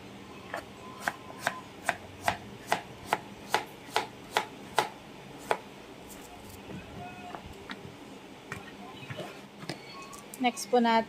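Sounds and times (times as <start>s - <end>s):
knife chopping on cutting board: 1.0s - 5.6s.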